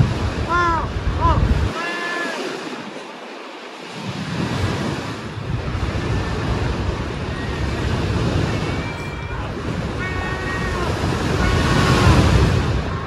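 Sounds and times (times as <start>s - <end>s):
sea waves washing: 0.0s - 13.0s
seagulls calling: 7.2s - 13.0s.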